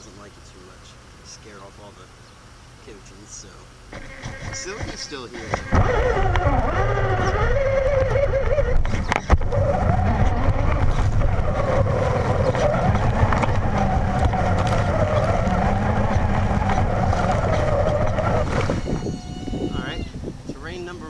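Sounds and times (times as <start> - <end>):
chassis and tyres rattling: 3.9 - 20.0
electric motor whining: 3.9 - 20.2.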